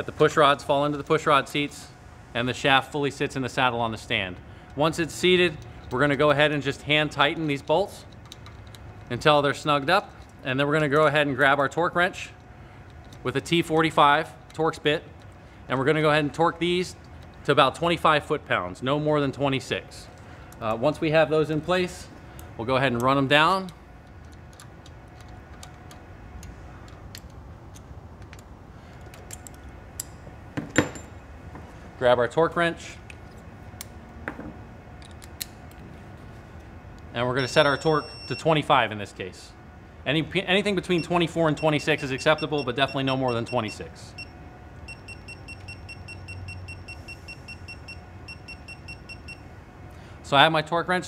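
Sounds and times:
short high beeps: 0:37.4 - 0:38.5.

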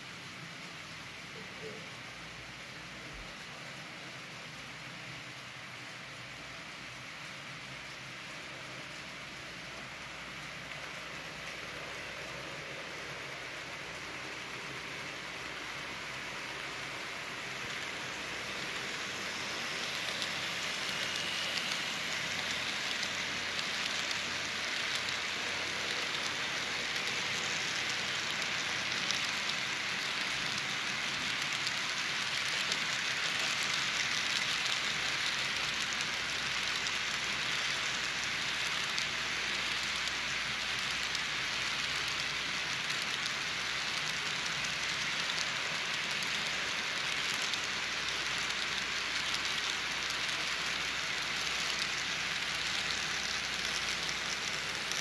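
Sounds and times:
model train wheels rattling: 0:06.4 - 0:55.0.

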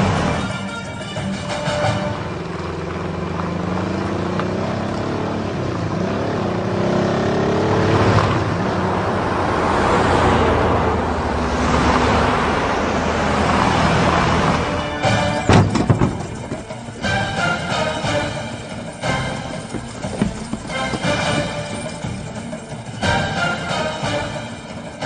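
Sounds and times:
vehicle engines driving past: 0:01.6 - 0:25.0
sharp knocks: 0:15.4 - 0:16.8.

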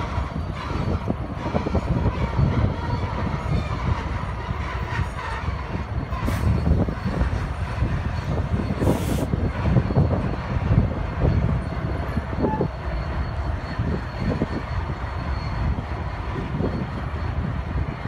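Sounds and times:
locomotive engine rumble: 0:00.0 - 0:18.0
train wheels on rail: 0:00.0 - 0:18.0
short air hisses: 0:08.8 - 0:09.3.

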